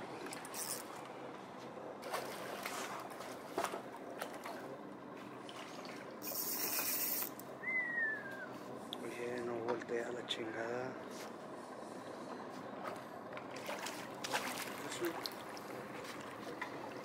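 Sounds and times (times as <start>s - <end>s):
water splashing and lapping: 2.0s - 7.2s, 12.8s - 17.0s.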